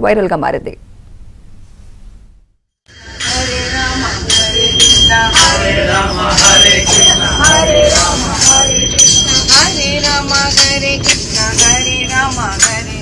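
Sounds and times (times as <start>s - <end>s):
hand cymbals ringing: 2.9s - 13.0s
voices singing devotional song: 2.9s - 13.0s.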